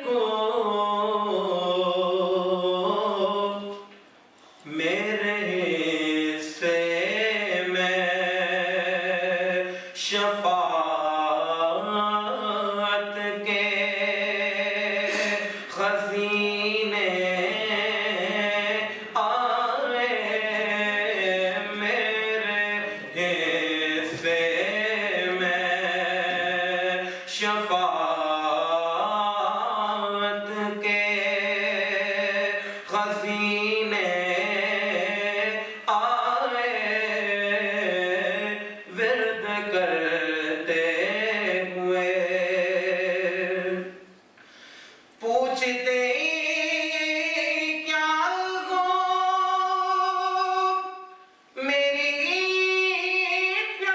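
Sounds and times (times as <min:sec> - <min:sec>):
man chanting into microphone: 0:00.0 - 0:03.9, 0:04.6 - 0:44.0, 0:45.2 - 0:53.9
man singing solo: 0:04.7 - 0:44.0.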